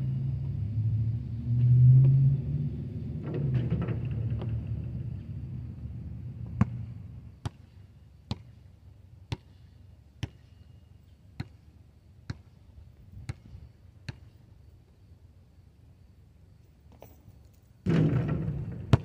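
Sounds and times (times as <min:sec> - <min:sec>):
low rumble: 0:00.0 - 0:07.3
basketball bouncing on asphalt: 0:06.0 - 0:14.4, 0:17.8 - 0:19.0.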